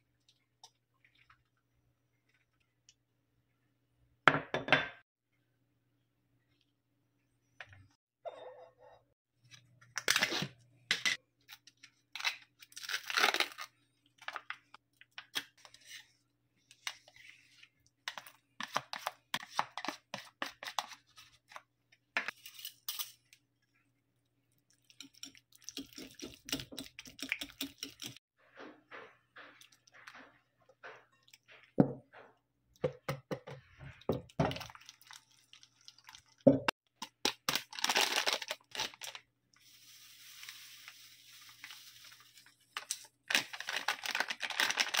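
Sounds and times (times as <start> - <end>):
plastic sachet rustling: 37.3 - 45.0.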